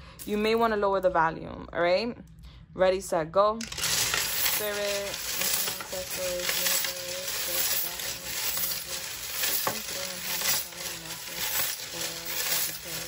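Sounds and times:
charms jingling in a bowl: 3.6 - 13.0.

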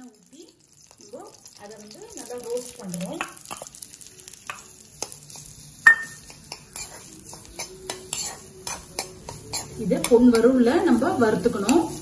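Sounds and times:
hot oil sizzling: 0.0 - 12.0
metallic clink: 5.8 - 6.2.

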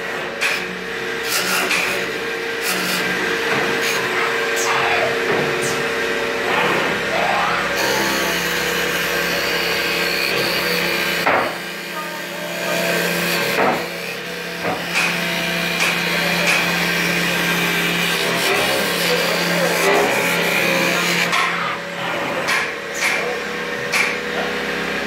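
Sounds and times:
motor hum: 0.0 - 25.0
cutting tool rasping on wood: 1.2 - 3.2, 7.7 - 23.2.

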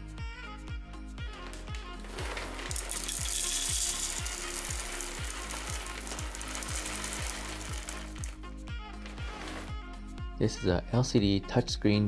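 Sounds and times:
background music with beat: 0.0 - 11.8
coffee beans pouring into grinder: 1.6 - 8.4, 9.1 - 9.7.

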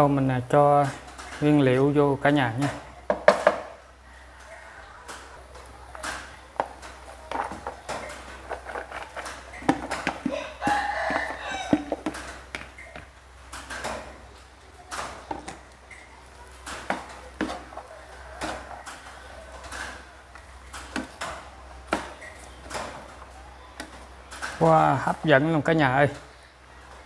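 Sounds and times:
wooden spatula scraping frying pan: 7.0 - 12.5.

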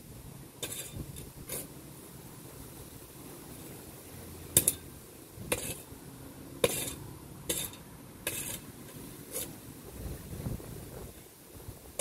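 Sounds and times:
spade digging into soil: 0.6 - 1.8, 4.5 - 5.9, 6.6 - 9.6
spade scraping: 0.6 - 1.8, 4.5 - 6.0, 6.6 - 9.6.

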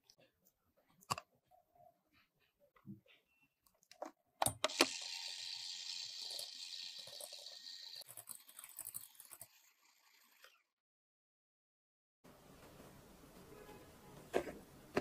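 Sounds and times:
electric hand mixer running: 4.7 - 8.0.

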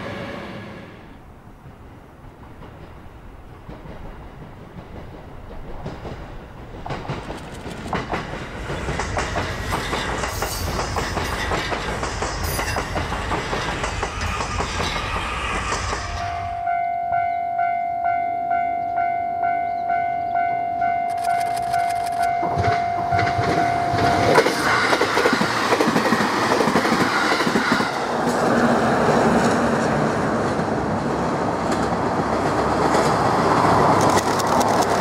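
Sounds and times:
train rumbling past: 0.0 - 35.0
wheels clacking over rail joints: 2.2 - 16.3, 21.2 - 35.0.

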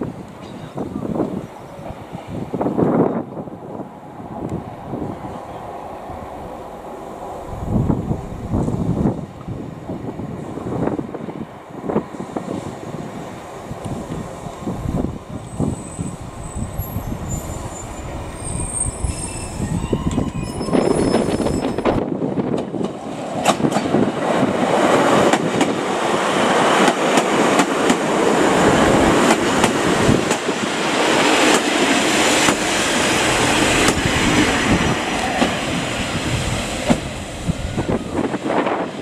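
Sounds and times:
diesel train rumbling: 0.0 - 39.0
train passing at speed: 0.0 - 39.0.

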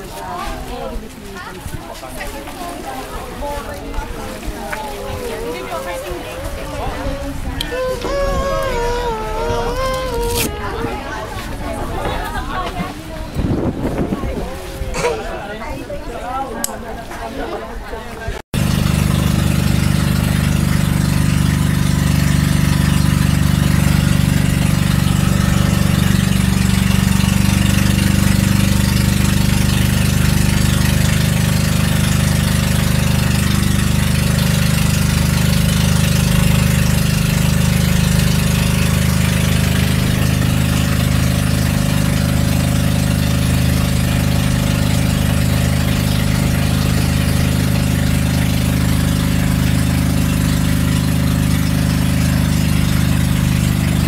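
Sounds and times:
boat engine droning: 4.2 - 11.8, 18.6 - 54.0.

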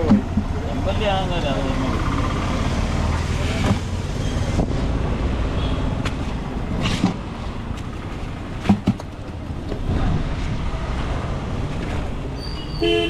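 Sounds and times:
sharp knocks and clicks: 0.0 - 0.6, 6.0 - 9.9
road traffic rumbling: 0.0 - 13.0.

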